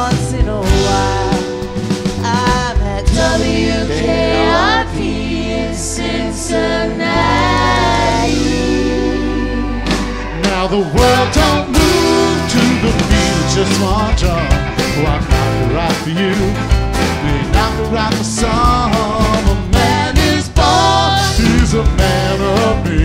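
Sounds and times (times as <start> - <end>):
bass line: 0.0 - 23.0
drum kit beat: 0.0 - 23.0
keyboard chords: 0.0 - 23.0
people singing: 0.0 - 23.0.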